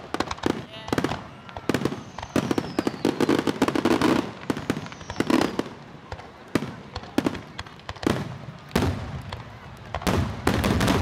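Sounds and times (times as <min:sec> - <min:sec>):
fireworks bangs and crackling: 0:00.0 - 0:11.0
falling firework whistle: 0:01.0 - 0:11.0.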